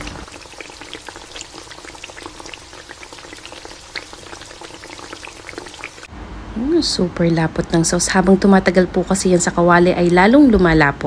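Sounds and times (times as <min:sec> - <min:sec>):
stew sauce bubbling: 0:00.0 - 0:06.1.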